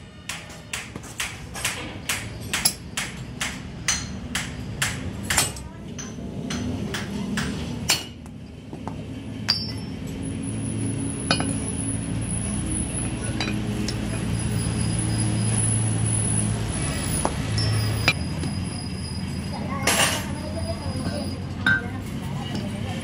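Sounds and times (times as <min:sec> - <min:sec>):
hammer striking metal: 0:00.3 - 0:08.3, 0:09.4 - 0:10.0, 0:11.2 - 0:11.7
clinks of steel parts: 0:09.5 - 0:10.0, 0:11.3 - 0:11.7, 0:13.2 - 0:14.2.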